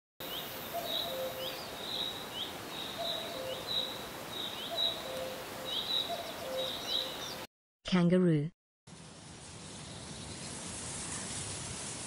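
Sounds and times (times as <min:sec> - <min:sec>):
bird chirps: 0:00.2 - 0:07.5.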